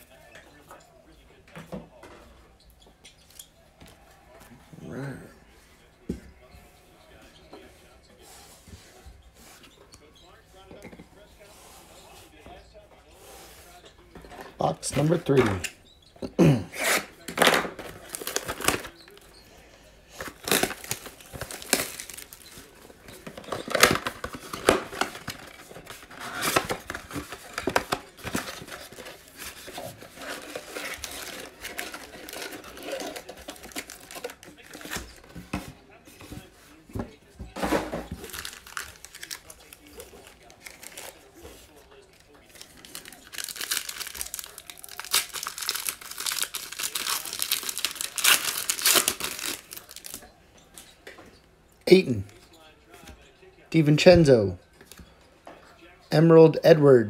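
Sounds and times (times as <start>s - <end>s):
packaging crinkling and tearing: 16.8s - 19.2s, 20.2s - 35.3s, 38.2s - 41.7s, 42.5s - 50.2s.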